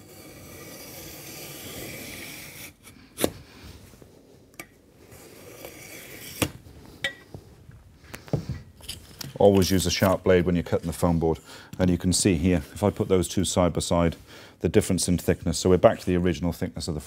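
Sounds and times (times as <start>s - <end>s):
knife scraping through board: 0.0s - 3.4s, 5.0s - 6.6s.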